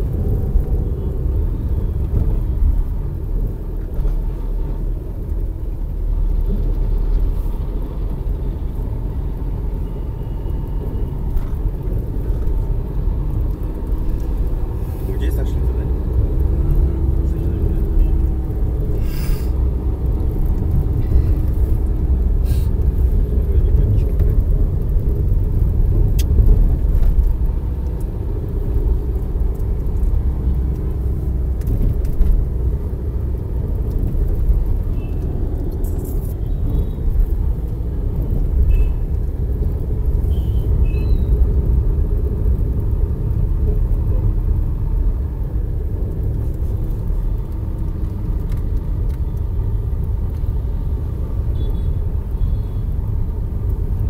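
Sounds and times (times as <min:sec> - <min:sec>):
vehicle road and engine rumble: 0:00.0 - 0:54.0.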